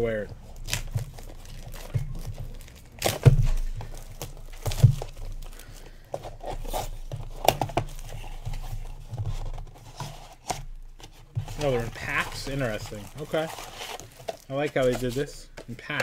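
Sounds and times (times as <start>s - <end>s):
plastic wrapping tearing and crumpling: 0.5s - 5.7s, 11.6s - 15.1s.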